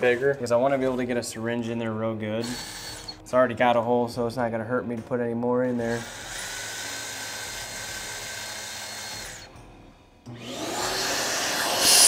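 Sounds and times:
cordless drill running: 0:02.4 - 0:03.2, 0:05.9 - 0:09.5, 0:10.3 - 0:12.0
shop vacuum whining: 0:10.3 - 0:12.0.

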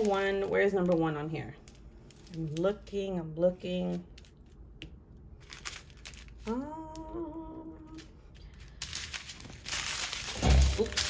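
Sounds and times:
plastic bags crinkling: 0:00.0 - 0:03.1, 0:03.8 - 0:11.0
woman humming: 0:06.4 - 0:08.2.

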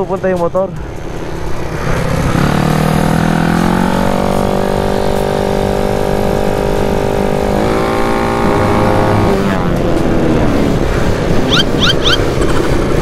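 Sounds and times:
scooter engine high drone: 0:00.8 - 0:13.0
wind on microphone: 0:06.3 - 0:13.0.

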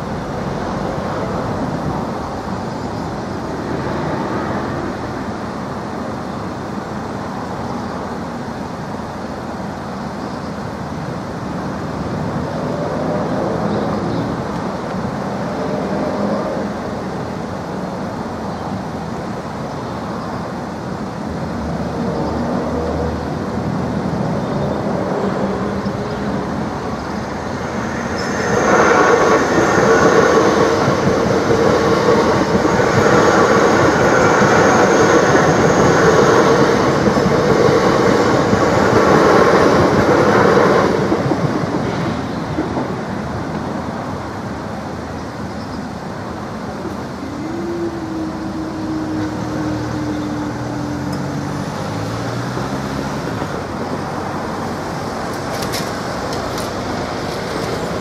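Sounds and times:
electric train passing at speed: 0:00.0 - 0:58.0
steady tone sliding down in pitch: 0:46.8 - 0:53.5.

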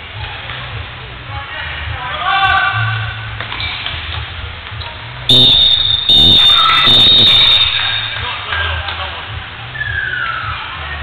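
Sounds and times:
game clock buzzer: 0:05.3 - 0:08.1.

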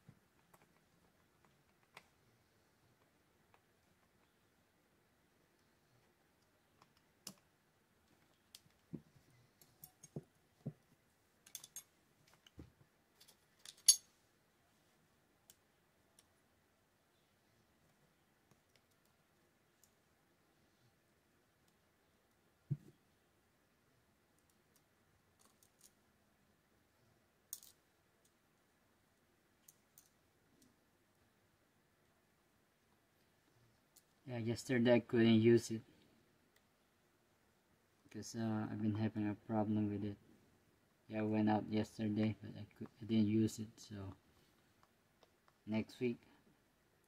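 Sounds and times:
small metal parts clicking: 0:11.4 - 0:11.9, 0:13.2 - 0:14.1, 0:27.5 - 0:27.8.

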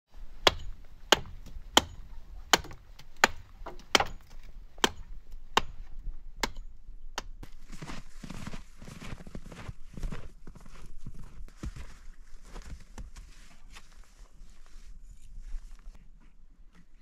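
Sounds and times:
axe chopping wood: 0:00.4 - 0:07.4.

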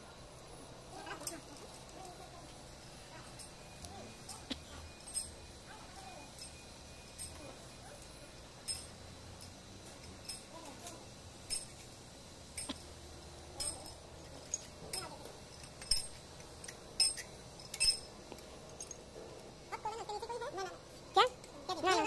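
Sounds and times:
metal parts clinking: 0:01.0 - 0:02.3, 0:03.2 - 0:19.1.

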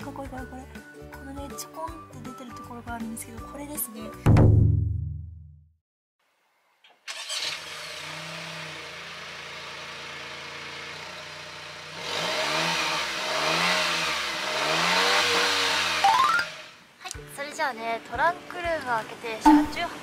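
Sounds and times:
car engine starting and idling: 0:07.0 - 0:13.3
car engine revving: 0:07.2 - 0:16.8.

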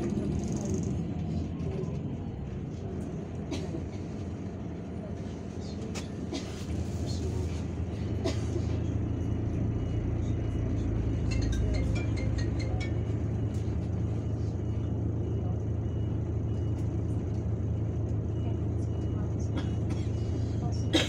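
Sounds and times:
bus engine idling: 0:00.0 - 0:21.0.

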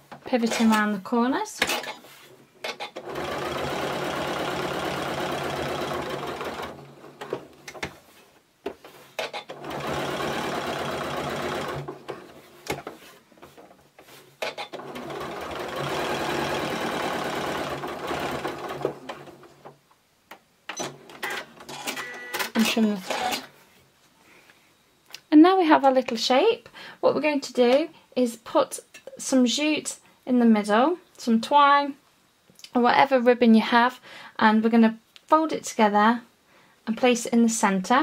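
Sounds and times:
sewing machine running: 0:03.0 - 0:07.4, 0:09.5 - 0:12.3, 0:14.6 - 0:19.6.

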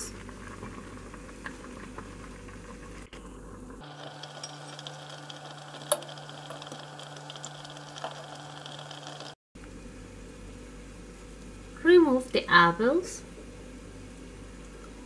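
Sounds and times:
pot simmering hiss: 0:00.0 - 0:09.4.

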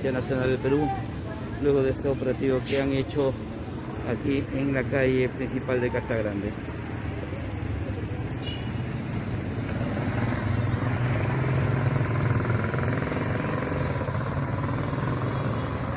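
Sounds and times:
motorcycle engines humming: 0:03.3 - 0:15.9.

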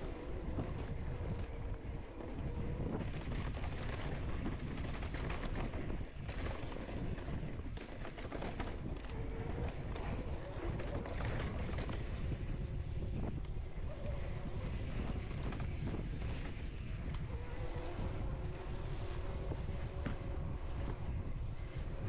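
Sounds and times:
bike tyres on dirt: 0:00.0 - 0:22.0
wind rumbling on microphone: 0:00.0 - 0:22.0
bike chain and frame rattling: 0:02.3 - 0:13.4.

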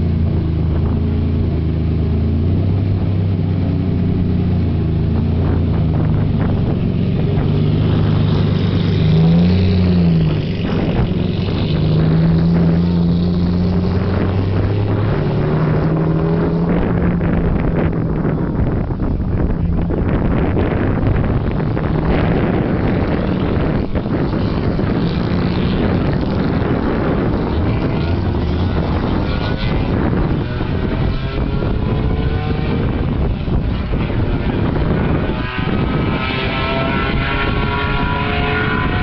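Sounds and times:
car engine at low revs: 0:00.0 - 0:39.0
short engine rev: 0:20.2 - 0:39.0.

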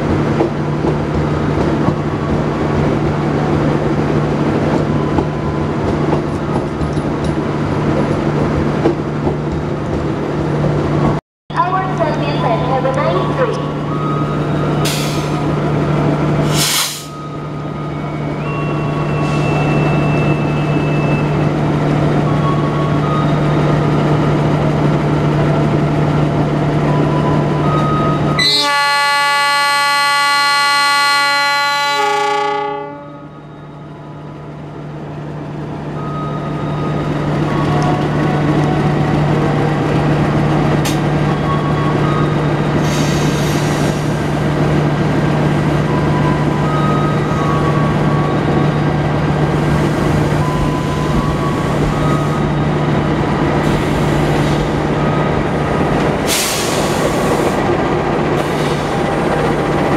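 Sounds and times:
diesel locomotive droning: 0:00.0 - 0:59.9
locomotive horn blast: 0:28.4 - 0:33.4.

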